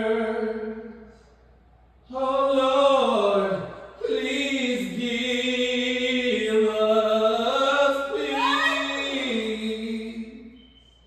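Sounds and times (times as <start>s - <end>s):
person singing unaccompanied: 7.9s - 9.8s.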